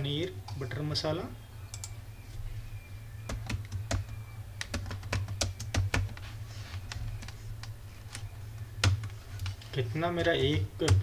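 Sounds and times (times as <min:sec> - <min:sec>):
low hum: 0:00.0 - 0:05.7
keyboard typing clicks: 0:01.7 - 0:02.0, 0:03.2 - 0:06.2, 0:06.8 - 0:09.6.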